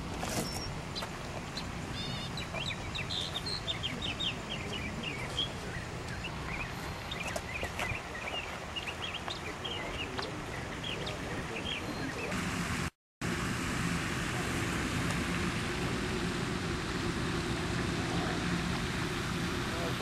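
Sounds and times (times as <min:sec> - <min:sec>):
steady rushing noise: 0:00.0 - 0:20.0
small birds chirping: 0:00.2 - 0:12.4.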